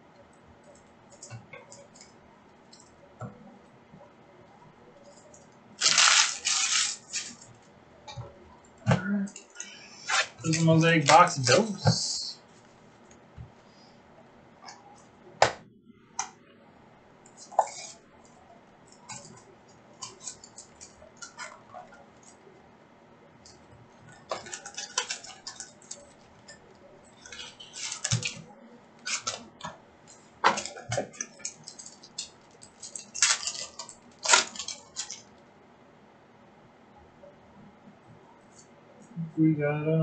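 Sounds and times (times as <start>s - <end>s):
foil wrapping crinkling: 5.8s - 7.7s, 9.4s - 11.8s, 24.1s - 29.5s, 30.2s - 35.4s.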